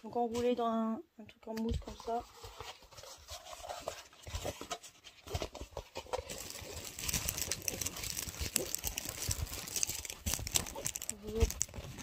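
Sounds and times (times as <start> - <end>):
plastic film crinkling: 4.5 - 12.0.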